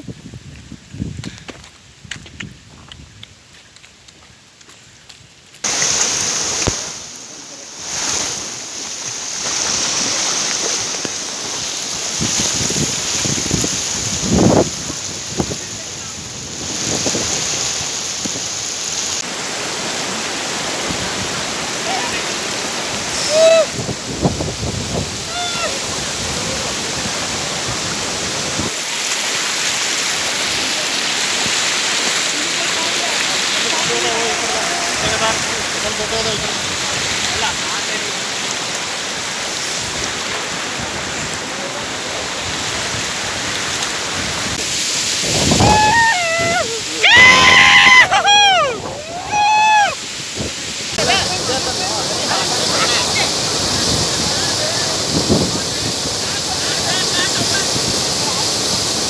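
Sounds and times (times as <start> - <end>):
stream rushing over rocks: 0.0 - 59.0
person calling out: 23.2 - 23.8, 25.3 - 25.8, 45.6 - 50.0.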